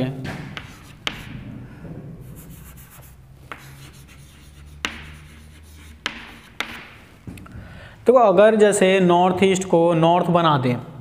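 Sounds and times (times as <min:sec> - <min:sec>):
chalk tapping on board: 0:00.5 - 0:01.4, 0:02.3 - 0:07.0
chalk scratching on board: 0:00.6 - 0:01.4, 0:02.2 - 0:07.0.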